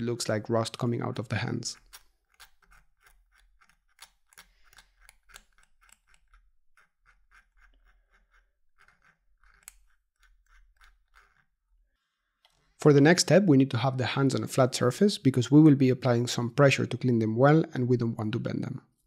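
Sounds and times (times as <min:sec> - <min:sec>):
small tool scrapes and ticks: 0:01.7 - 0:11.6.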